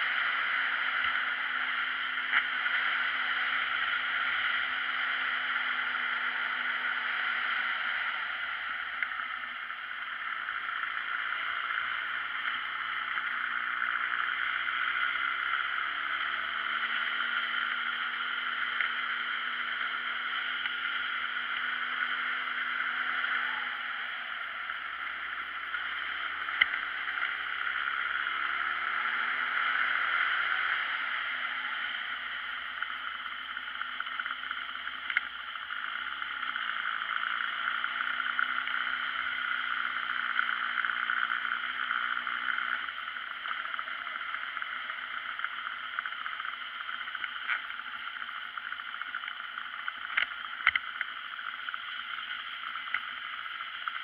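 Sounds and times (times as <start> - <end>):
faint motorbike engine: 0.0 - 54.0
small clicks: 33.8 - 35.7, 42.5 - 54.0.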